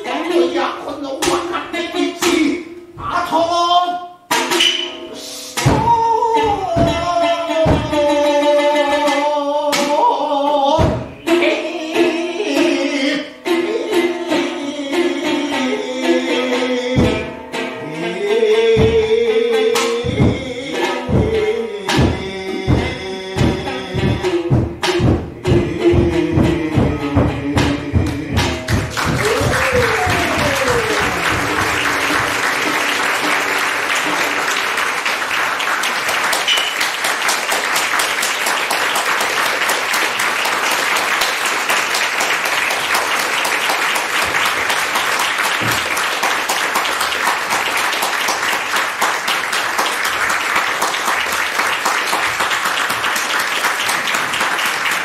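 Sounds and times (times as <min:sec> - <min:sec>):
music: 0:00.0 - 0:03.0, 0:04.1 - 0:37.6
audience applauding: 0:28.6 - 0:55.0.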